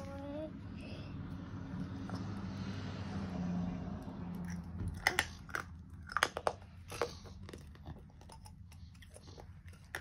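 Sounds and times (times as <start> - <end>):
plastic toys clicking and tapping: 4.5 - 10.0.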